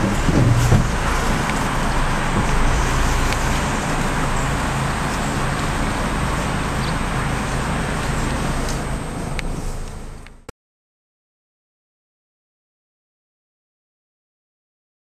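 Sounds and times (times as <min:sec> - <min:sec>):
car engine running at low revs: 0:00.0 - 0:10.5
road noise: 0:00.0 - 0:10.5.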